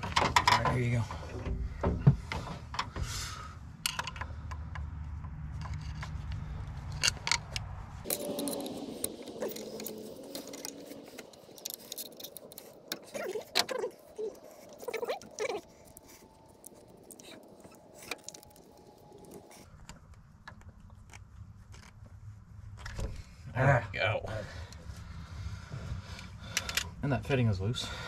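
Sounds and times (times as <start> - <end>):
low rumble: 3.0 - 19.7.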